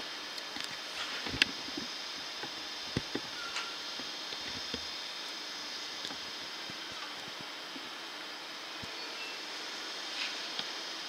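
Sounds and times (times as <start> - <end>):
steady hiss: 0.0 - 11.0.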